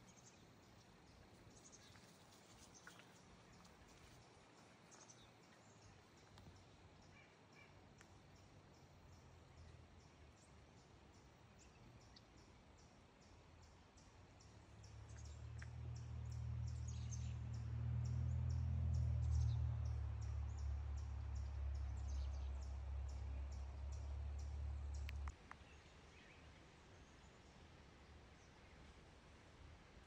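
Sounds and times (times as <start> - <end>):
low mechanical drone: 14.8 - 25.3.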